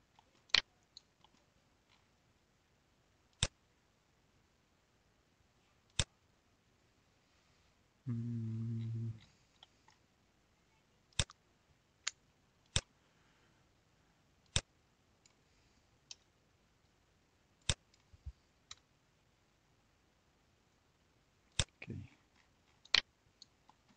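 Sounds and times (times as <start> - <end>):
low steady hum: 0.0 - 23.9
computer mouse clicks: 0.1 - 2.0, 3.4 - 3.6, 5.9 - 6.1, 11.1 - 11.4, 12.0 - 12.9, 14.5 - 15.4, 17.6 - 18.9, 22.7 - 23.9.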